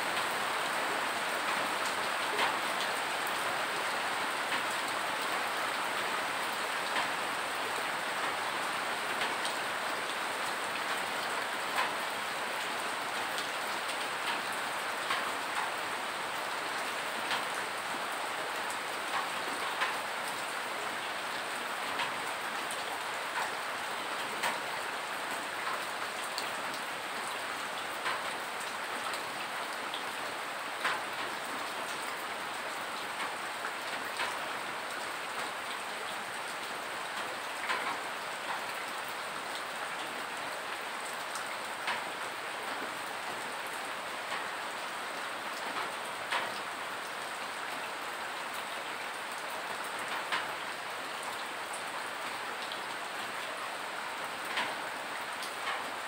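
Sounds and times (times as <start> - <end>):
steady rain falling: 0.0 - 56.0
close raindrops landing: 13.3 - 16.1, 21.8 - 40.0, 55.4 - 56.0.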